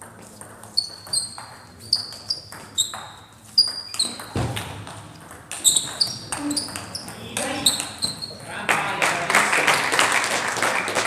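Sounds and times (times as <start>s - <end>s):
table tennis ball clicking: 0.4s - 8.3s.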